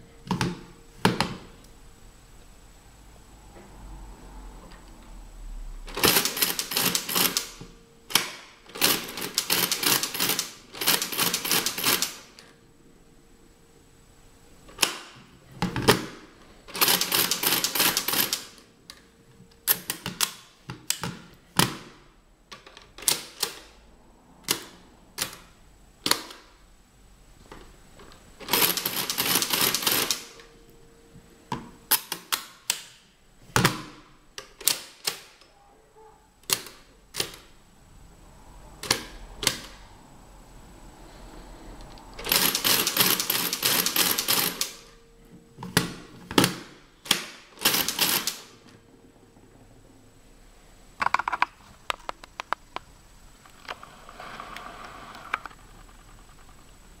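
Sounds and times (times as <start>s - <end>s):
mechanical calculator clattering: 5.9s - 12.3s, 15.8s - 18.6s, 28.4s - 30.4s, 42.2s - 44.8s, 46.3s - 48.8s.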